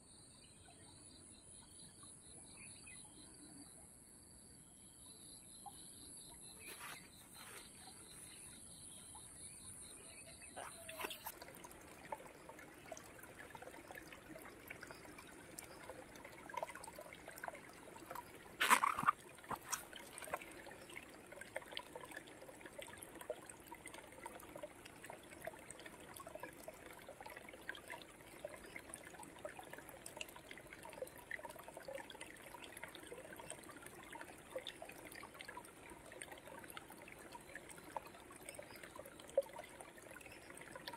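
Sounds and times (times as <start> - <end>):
water trickling: 4.8 - 40.9
insects chirring: 5.0 - 20.9.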